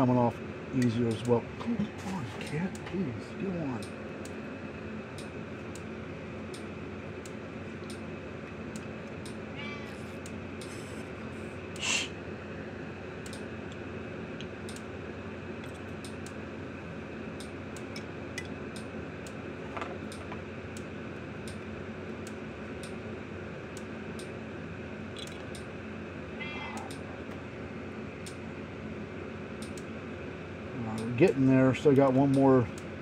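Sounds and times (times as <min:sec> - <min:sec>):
low room hum: 0:00.0 - 0:33.0
cat meowing: 0:09.6 - 0:10.0.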